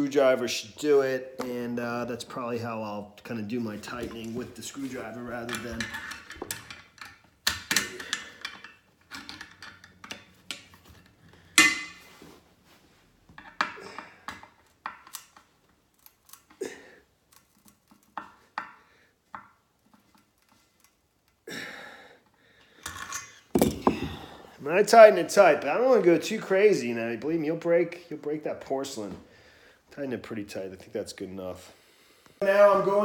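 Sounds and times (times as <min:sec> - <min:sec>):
metal clank: 0:11.6 - 0:12.1.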